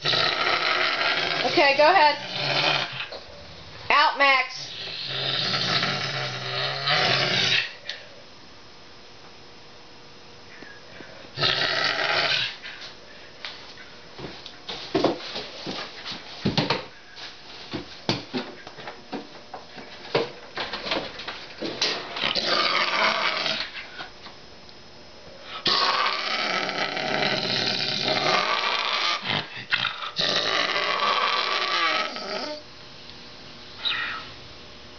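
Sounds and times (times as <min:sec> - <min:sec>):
lynx growling: 0:00.0 - 0:03.2, 0:04.7 - 0:07.8, 0:11.4 - 0:12.6, 0:22.2 - 0:23.8, 0:25.6 - 0:32.6.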